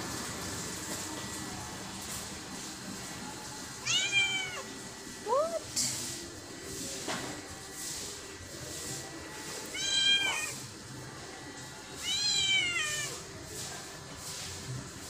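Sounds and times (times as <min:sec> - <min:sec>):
cat meowing: 0:03.8 - 0:04.7, 0:09.7 - 0:10.6, 0:12.0 - 0:13.2.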